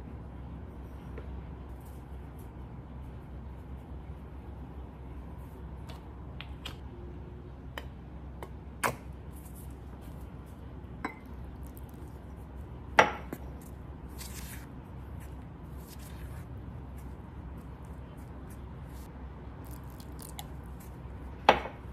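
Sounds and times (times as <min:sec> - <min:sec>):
wooden spoon rustling in flour: 0:13.5 - 0:19.1.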